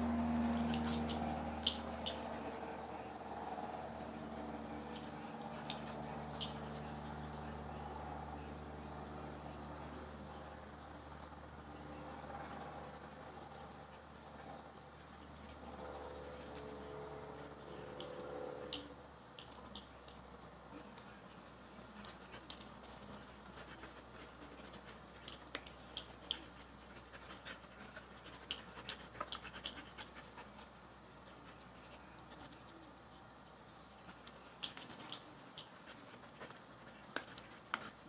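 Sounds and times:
faint low hum: 0.0s - 38.0s
claws clicking and scratching: 0.4s - 3.0s, 4.7s - 7.5s, 15.4s - 20.3s, 21.6s - 33.3s, 34.0s - 38.0s.

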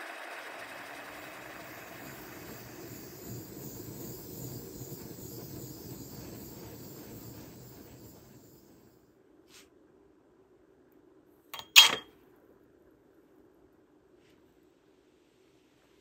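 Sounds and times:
gas torch flame hissing: 1.1s - 9.0s.

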